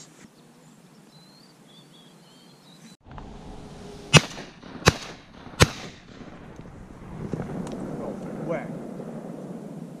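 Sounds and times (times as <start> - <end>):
shotgun shots: 4.1 - 6.6.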